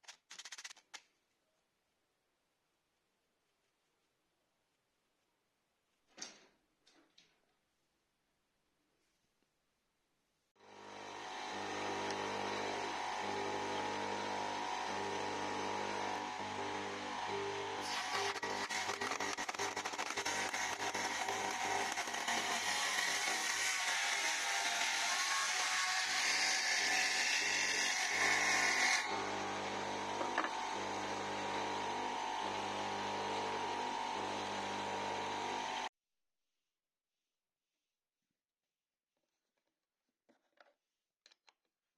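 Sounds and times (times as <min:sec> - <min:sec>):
table saw motor spinning: 0:10.6 - 0:35.9.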